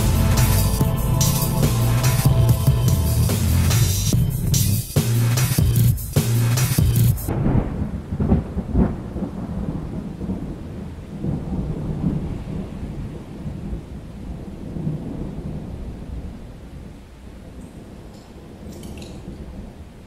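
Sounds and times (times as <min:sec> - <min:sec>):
thunder rumbling: 0:00.0 - 0:04.6, 0:07.3 - 0:20.0
rain hissing: 0:00.0 - 0:05.0
music: 0:00.0 - 0:07.3.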